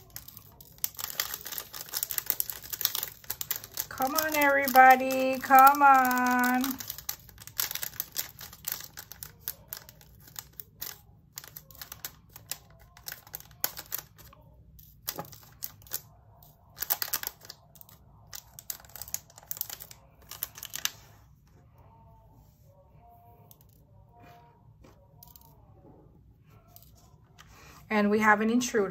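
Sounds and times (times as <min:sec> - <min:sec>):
small resin beads rattling in plastic: 0:00.0 - 0:21.1.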